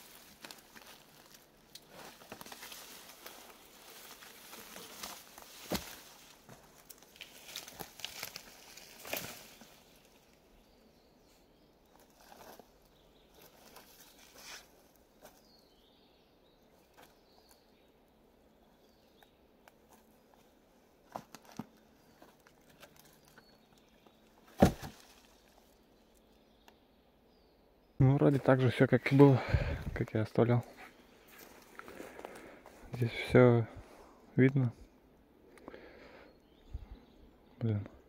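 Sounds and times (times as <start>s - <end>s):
dry sticks rustling and cracking: 0.0s - 10.4s, 11.8s - 15.5s, 19.1s - 26.8s, 30.6s - 33.0s.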